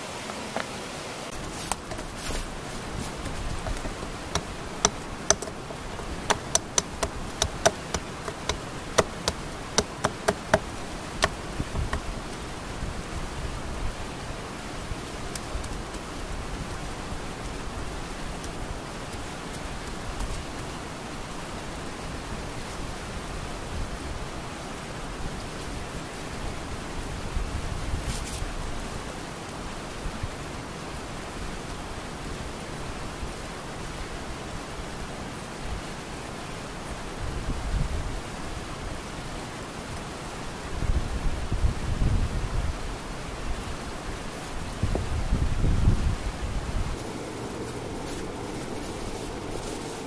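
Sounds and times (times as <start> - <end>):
steady hiss: 0.0 - 50.0
machete knocking wooden stake: 3.2 - 12.1.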